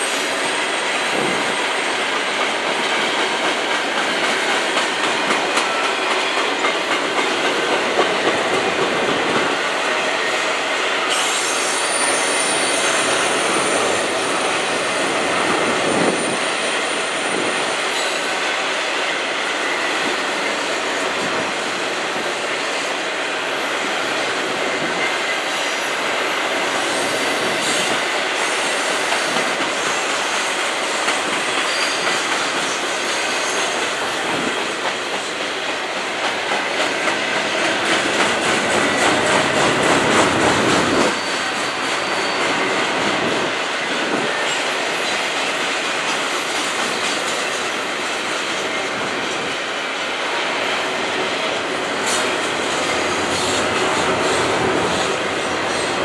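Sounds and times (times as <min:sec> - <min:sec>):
train wheels rumbling on rail: 0:00.0 - 0:56.0
high wheel squeal: 0:11.0 - 0:18.4, 0:31.5 - 0:34.4, 0:38.8 - 0:43.5.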